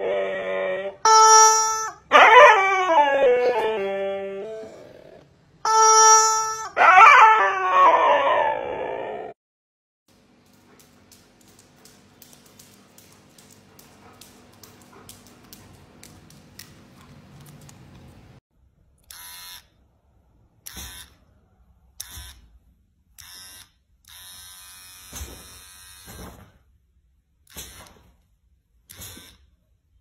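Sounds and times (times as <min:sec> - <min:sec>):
electric hair trimmer buzzing: 0:19.1 - 0:19.6, 0:23.2 - 0:26.1.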